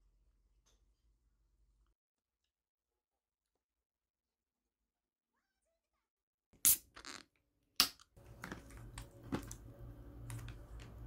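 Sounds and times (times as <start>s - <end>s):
low steady hum: 8.2s - 11.0s.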